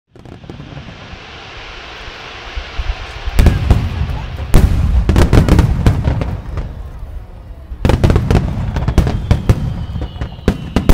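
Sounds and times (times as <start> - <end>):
firework rushing hiss: 0.1 - 10.9
firework shells booming: 3.3 - 10.9.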